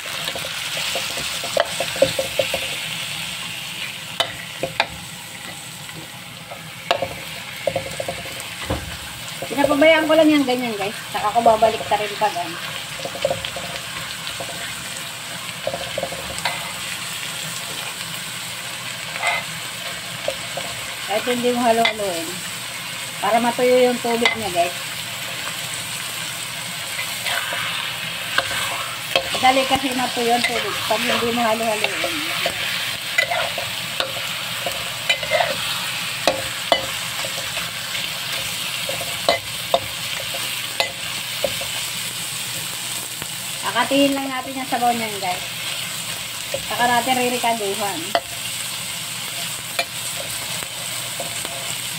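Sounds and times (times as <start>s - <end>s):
spatula scraping a wok: 0.0s - 5.7s, 10.9s - 15.0s, 15.6s - 18.0s, 19.0s - 22.0s, 26.5s - 42.7s, 45.6s - 51.9s
meat sizzling in a wok: 0.0s - 51.9s.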